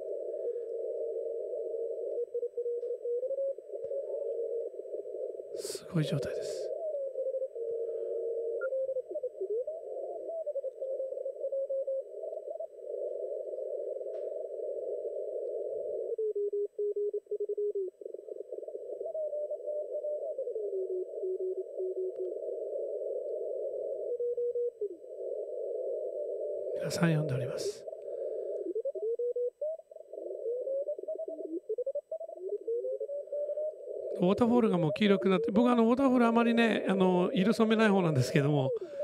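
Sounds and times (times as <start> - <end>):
radio hiss: 3.7 - 6.8, 20.7 - 28.7, 33.3 - 39.0.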